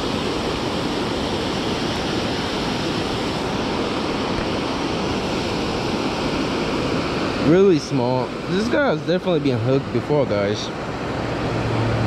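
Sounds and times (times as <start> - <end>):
river water rushing over a dam: 0.0 - 12.0.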